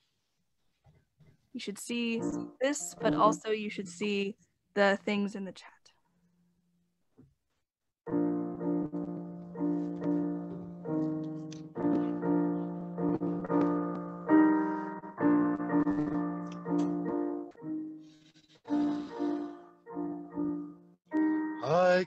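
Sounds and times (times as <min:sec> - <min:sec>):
solo piano chords: 0:02.2 - 0:03.5, 0:08.1 - 0:18.1, 0:18.7 - 0:22.0.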